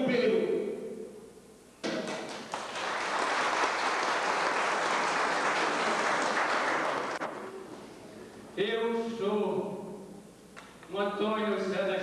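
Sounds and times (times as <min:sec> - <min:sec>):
audience applauding: 0:02.0 - 0:07.4.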